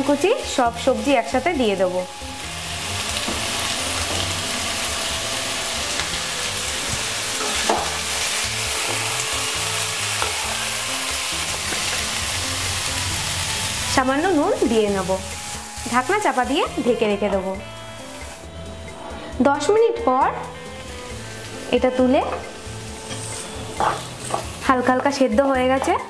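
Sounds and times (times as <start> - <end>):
vegetables sizzling in hot oil: 0.0 - 18.7, 19.5 - 26.0.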